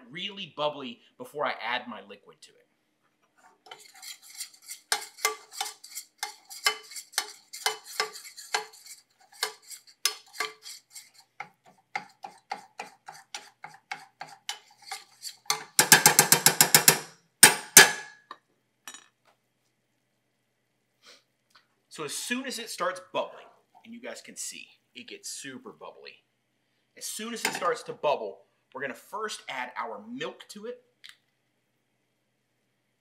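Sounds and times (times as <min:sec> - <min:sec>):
metal utensil stirring in saucepan: 0:03.6 - 0:17.0, 0:27.4 - 0:27.8
sharp knocks on pan: 0:15.5 - 0:18.2.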